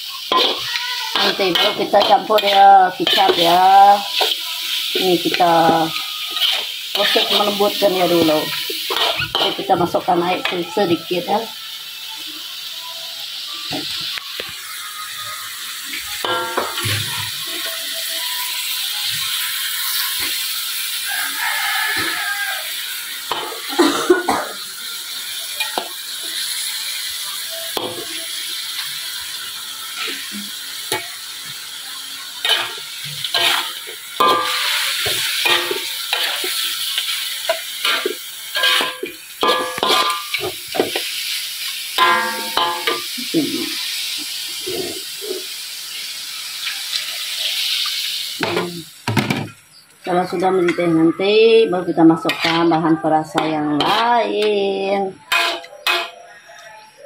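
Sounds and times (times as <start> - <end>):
meat sizzling in a wok: 0.0 - 57.0
metal spatula scraping a wok: 0.1 - 11.3, 32.4 - 43.2, 52.2 - 56.7.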